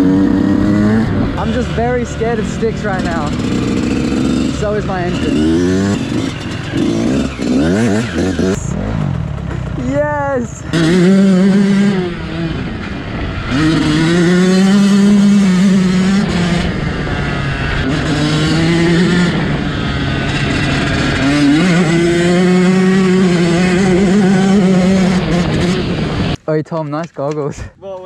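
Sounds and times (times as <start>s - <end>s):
dirt bike engine revving: 0.0s - 26.4s.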